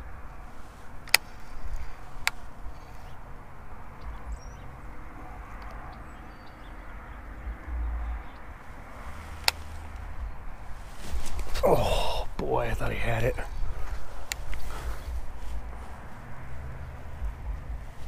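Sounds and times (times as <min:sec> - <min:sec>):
faint bird chirps: 0:01.3 - 0:09.4
low rumble on microphone: 0:02.8 - 0:12.1, 0:13.4 - 0:18.0.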